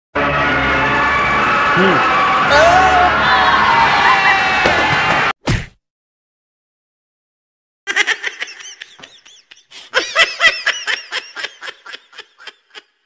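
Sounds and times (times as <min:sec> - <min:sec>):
person giggling: 0:07.9 - 0:13.0.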